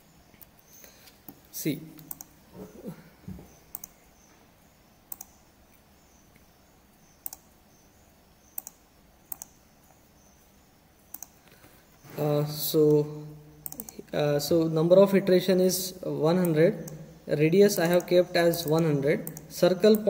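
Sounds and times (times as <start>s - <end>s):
faint room hiss: 0.0s - 20.0s
computer mouse clicking: 0.4s - 2.4s, 3.7s - 4.3s, 5.1s - 7.8s, 8.4s - 10.4s, 11.1s - 11.6s, 13.6s - 14.1s, 17.8s - 20.0s.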